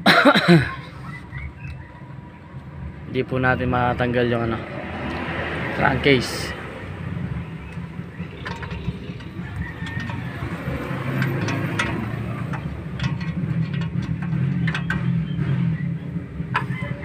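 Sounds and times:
vehicle engine rumbling: 0.0 - 17.0
light clicks and knocks: 7.6 - 15.2.

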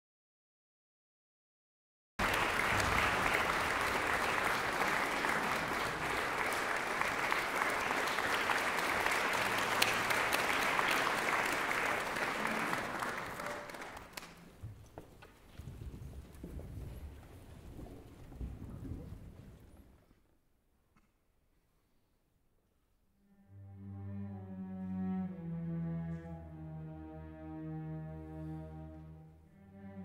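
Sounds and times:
audience applauding: 2.2 - 14.6.

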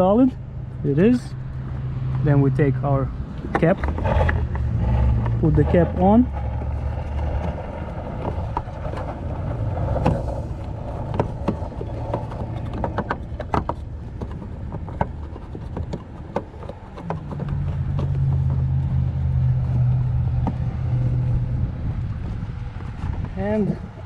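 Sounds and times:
plastic clicks and scrapes: 3.4 - 18.7.

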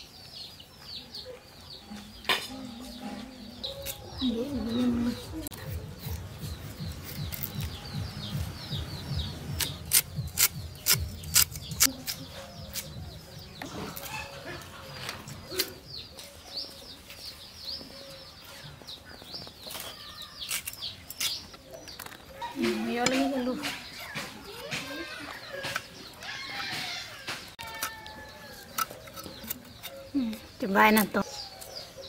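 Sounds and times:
small birds chirping: 0.0 - 32.0
knife cutting radish: 7.0 - 7.7, 9.6 - 12.9.

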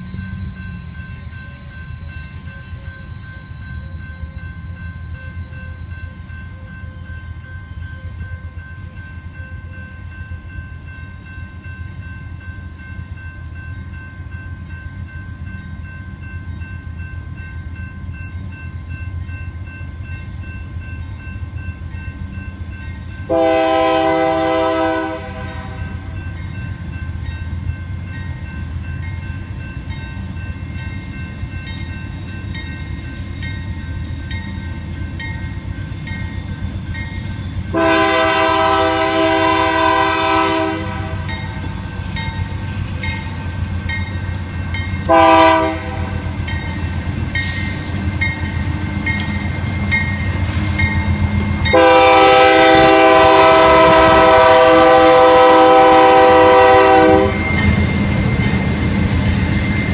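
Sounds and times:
train air horn blasts: 23.3 - 26.1, 37.7 - 41.3, 45.1 - 46.3, 51.7 - 57.6.

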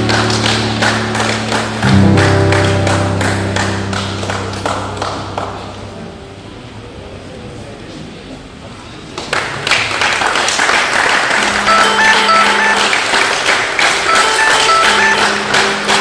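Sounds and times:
group applauding: 0.0 - 6.1, 9.1 - 16.0
chime-like melody: 11.7 - 13.1, 14.1 - 15.9.

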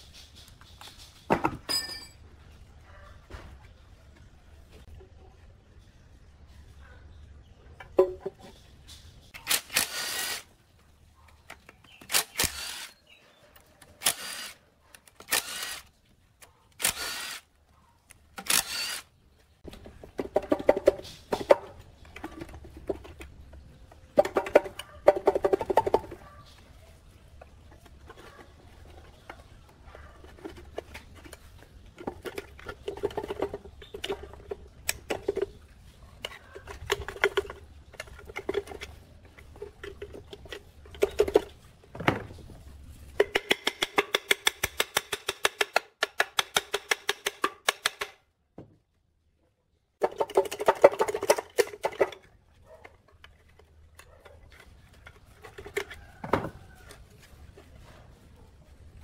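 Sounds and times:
metal parts knocking and scraping: 27.3 - 48.2
rapid clicking of hand tool: 43.2 - 48.2.

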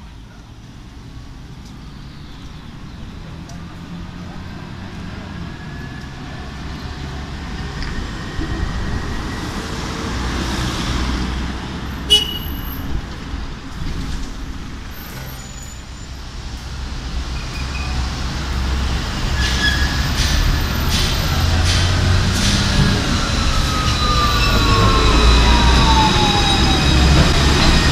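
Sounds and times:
street traffic: 0.0 - 27.9
tram running: 2.4 - 27.9.

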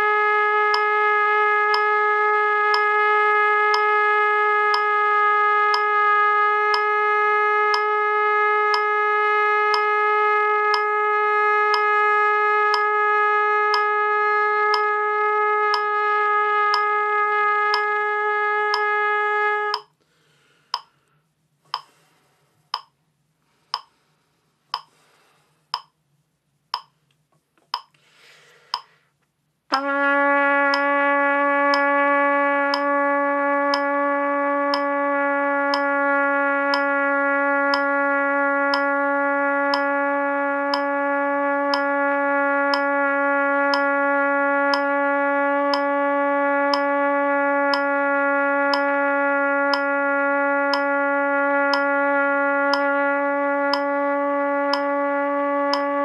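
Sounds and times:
trumpet long tone: 0.0 - 20.0, 29.7 - 56.0
metronome clicking: 1.7 - 1.9, 2.7 - 3.0, 3.7 - 4.0, 4.7 - 4.9, 5.7 - 5.9, 6.7 - 6.9, 7.7 - 7.9, 8.7 - 8.9, 9.7 - 9.9, 10.7 - 10.9, 12.7 - 12.9, 13.7 - 13.9, 14.7 - 14.9, 15.7 - 16.0, 16.7 - 16.9, 17.7 - 17.9, 18.7 - 18.9, 19.7 - 19.9, 21.7 - 22.0, 23.7 - 23.9, 26.8 - 27.0, 27.6 - 28.0, 28.7 - 29.0, 30.7 - 30.9, 31.7 - 32.0, 32.7 - 33.0, 33.7 - 34.0, 34.7 - 35.0, 35.7 - 35.9, 36.7 - 36.9, 37.7 - 38.0, 38.7 - 39.0, 39.7 - 40.0, 40.7 - 41.0, 41.7 - 42.0, 42.7 - 42.9, 43.7 - 43.9, 44.7 - 44.9, 45.7 - 45.9, 46.7 - 46.9, 47.7 - 48.0, 48.7 - 48.9, 49.7 - 49.9, 50.7 - 50.9, 51.7 - 51.9, 52.7 - 52.9, 53.7 - 54.0, 54.7 - 54.9, 55.7 - 56.0.

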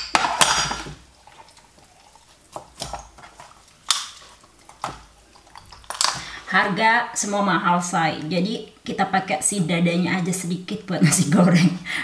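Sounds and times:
knife chopping on plastic board: 2.5 - 3.0.

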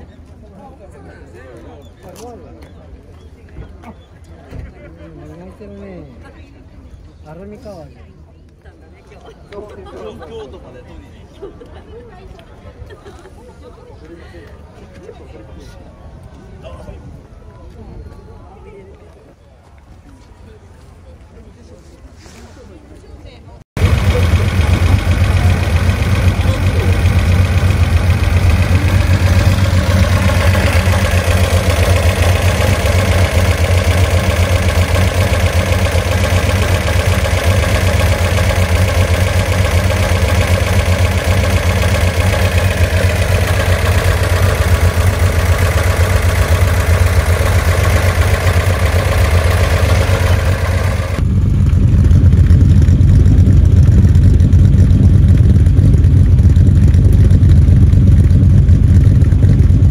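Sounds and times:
car engine idling: 23.8 - 59.9
deep exhaust note: 23.8 - 59.9.

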